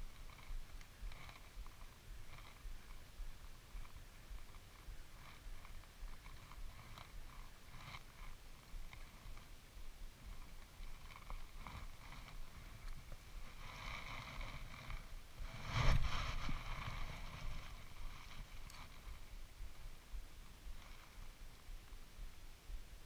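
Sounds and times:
small ticks: 0.0s - 15.2s, 16.8s - 19.8s.

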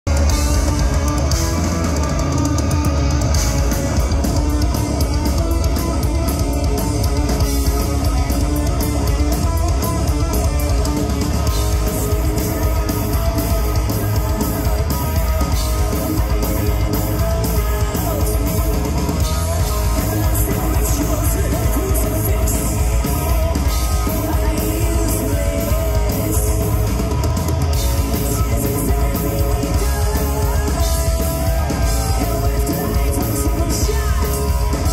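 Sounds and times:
bass guitar: 0.0s - 34.9s
distorted electric guitars: 0.0s - 34.9s
drum kit beat: 0.1s - 34.9s
person singing: 9.0s - 34.9s.

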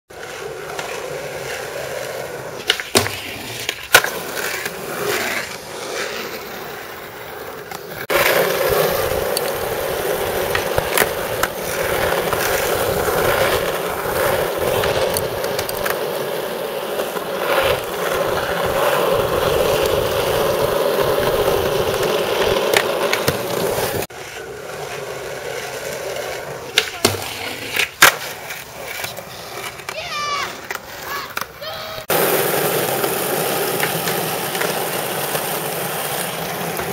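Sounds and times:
skateboard clacks: 0.1s - 36.9s
skateboard wheels rolling: 0.1s - 36.9s.

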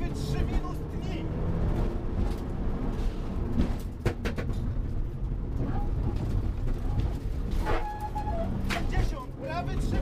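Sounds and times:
rally car engine at speed: 0.0s - 7.6s
road and tyre rumble: 0.0s - 10.0s
sharp knocks: 3.6s - 4.6s.

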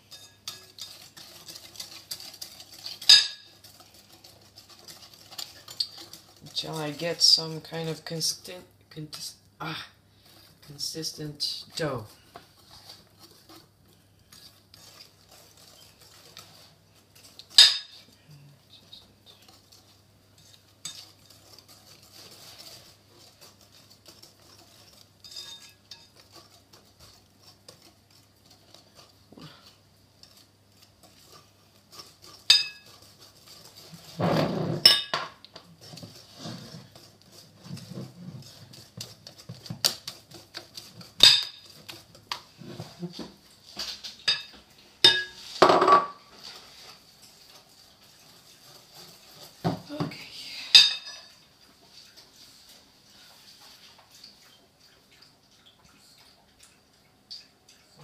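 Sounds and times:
utensil scraping glass bowl: 0.0s - 8.5s, 10.2s - 43.2s, 44.3s - 54.4s.

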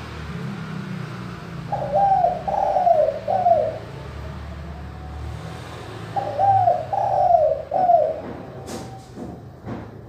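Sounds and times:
dove cooing: 1.7s - 4.3s, 6.1s - 8.4s.

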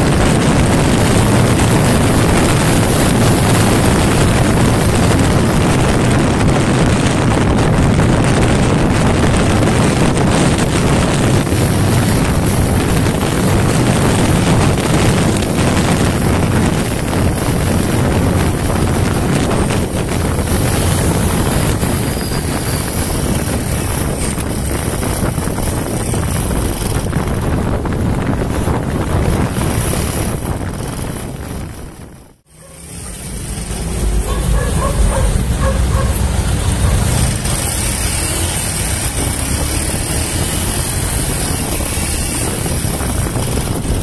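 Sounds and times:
motorcycle engine running hard: 0.0s - 44.0s
wind rush on microphone: 0.0s - 44.0s.

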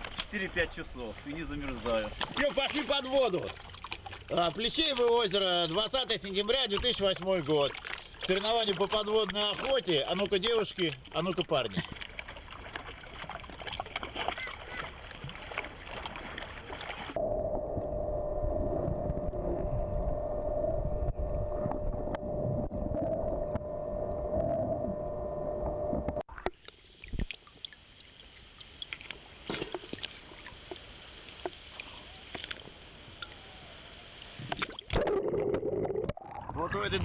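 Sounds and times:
scattered underwater clicks: 2.2s - 14.3s
underwater low rumble: 17.0s - 26.3s.

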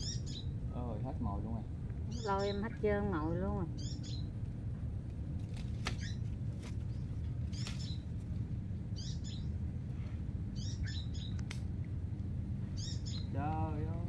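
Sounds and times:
bird chirping: 0.0s - 0.6s, 2.0s - 4.4s, 5.8s - 8.2s, 8.9s - 9.6s, 10.5s - 11.5s, 12.6s - 13.8s
low background rumble: 0.0s - 14.0s
faint sharp clicks: 11.3s - 11.7s.

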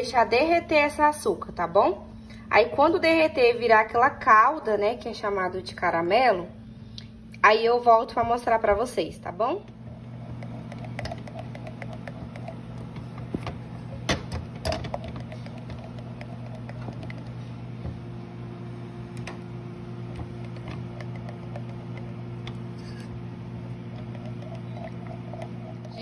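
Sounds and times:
steady low hum: 0.0s - 26.0s
spatula scraping metal pan: 22.7s - 23.2s.

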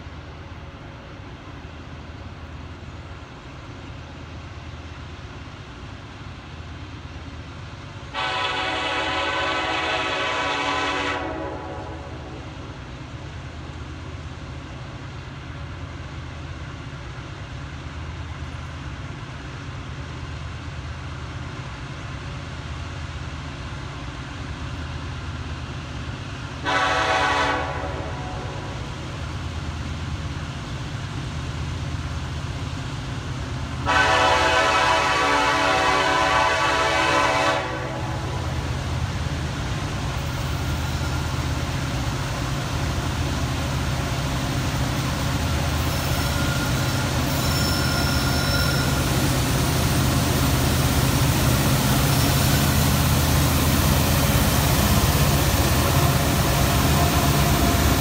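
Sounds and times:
low rumble of train: 0.0s - 58.0s
locomotive air horn blasts: 8.1s - 12.6s, 26.6s - 28.9s, 33.8s - 38.5s.

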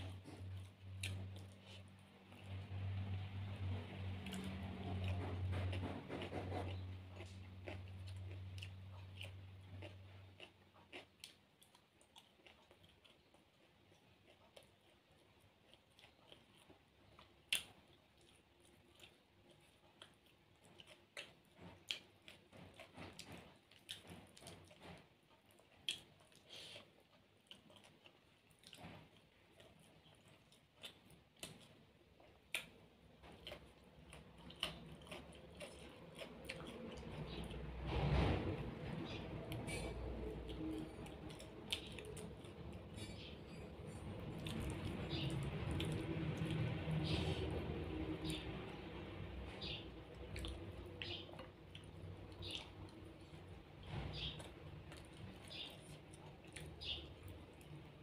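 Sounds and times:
person chewing: 0.0s - 58.0s.

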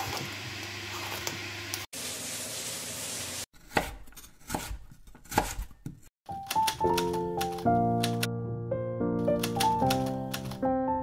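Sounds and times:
knife chopping on wooden board: 3.6s - 6.1s.

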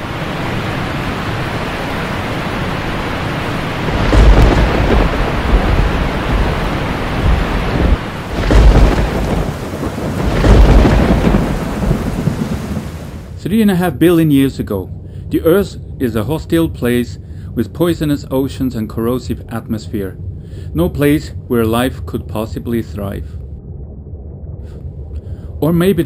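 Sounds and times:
steady rain: 0.0s - 14.4s
thunder rumbling: 0.0s - 16.9s.

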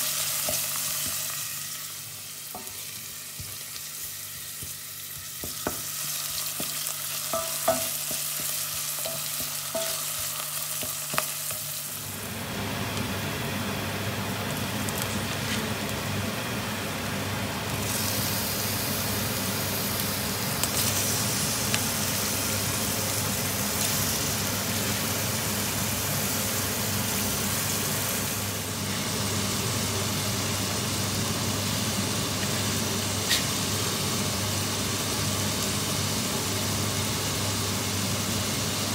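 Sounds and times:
mushrooms sizzling in frying pan: 0.0s - 38.9s
vegetables sizzling in steel pot: 0.0s - 38.9s.

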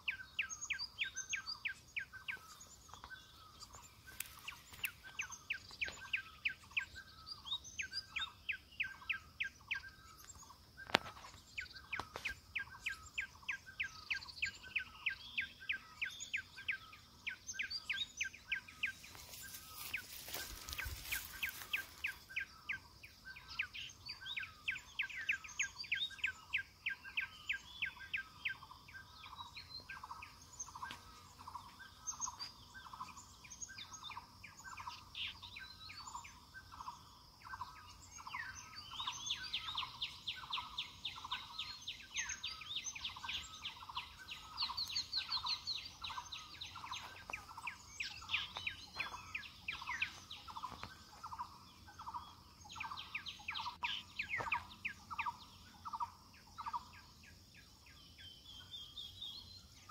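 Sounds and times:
high bird chirps: 37.6s - 56.9s.

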